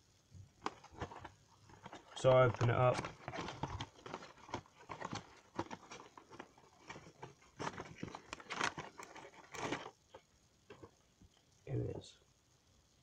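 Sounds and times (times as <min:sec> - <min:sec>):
cardboard box taps and rustles: 0:00.6 - 0:09.9.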